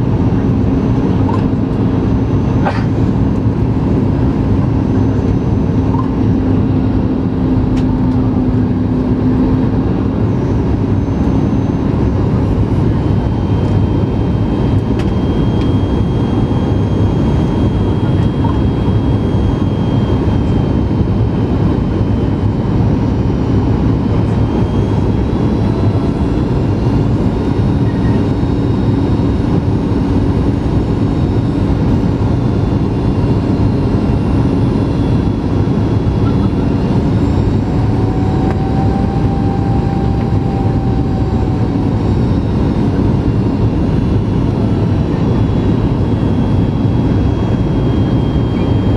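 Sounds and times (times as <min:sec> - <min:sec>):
airflow rush in cabin: 0:00.0 - 0:48.9
jet engine hum: 0:00.0 - 0:48.9
low hum: 0:00.0 - 0:48.9
faint high whine: 0:23.0 - 0:48.9.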